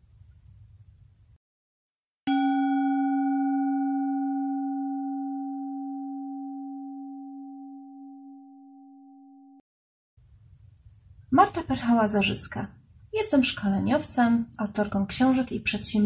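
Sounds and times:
singing bowl ringing: 0:02.3 - 0:09.6.

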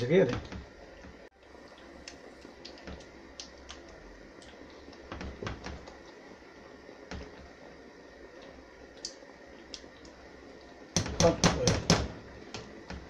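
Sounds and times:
knocks against a pan: 0:11.0 - 0:12.2.

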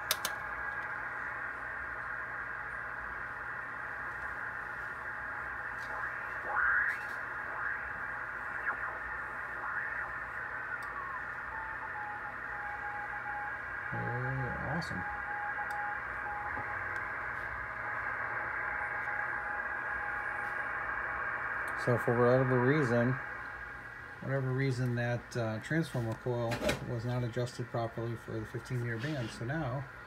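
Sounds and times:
radio band hiss: 0:00.0 - 0:30.0
radio signals whistling: 0:03.4 - 0:26.4
steady beat-note tone: 0:04.3 - 0:25.2.

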